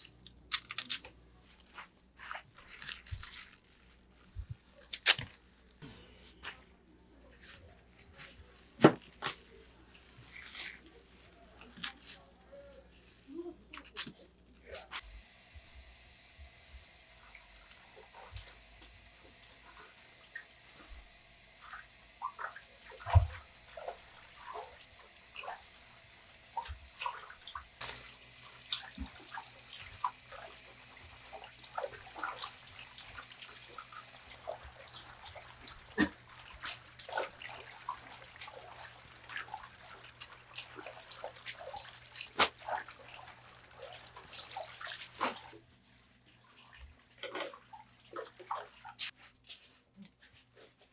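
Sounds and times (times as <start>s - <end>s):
water splashing in basin: 21.6s - 45.6s, 46.3s - 49.1s.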